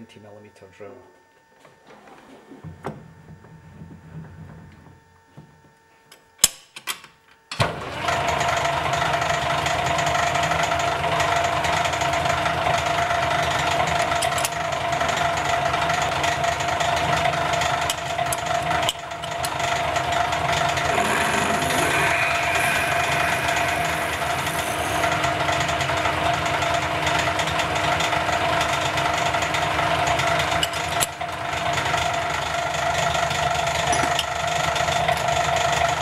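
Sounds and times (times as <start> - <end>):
metal lathe motor humming: 17.5 - 28.2.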